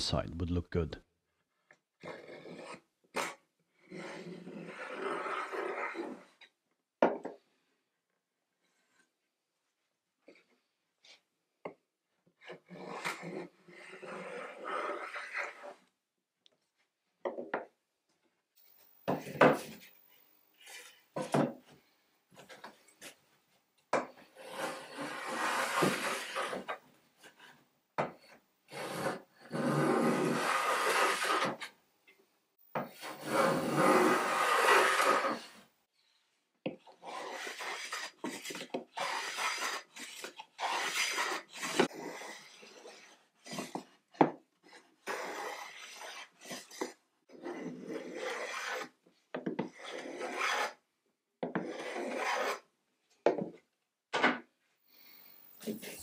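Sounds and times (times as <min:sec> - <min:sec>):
hand plane cutting wood: 0:02.0 - 0:06.2, 0:24.2 - 0:26.8, 0:28.2 - 0:31.7, 0:32.8 - 0:35.6, 0:36.9 - 0:43.8, 0:45.0 - 0:48.9, 0:49.6 - 0:50.8, 0:51.5 - 0:52.6.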